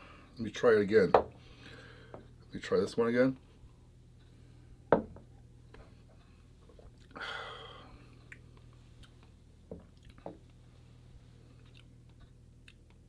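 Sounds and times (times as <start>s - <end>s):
glasses knocking on counter: 4.9s - 5.2s.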